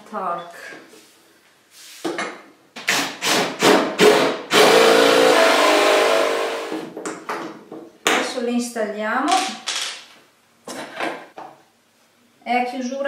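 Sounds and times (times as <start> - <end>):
drill boring into wood: 2.9 - 6.8
short bursts of drill sound: 2.9 - 6.8.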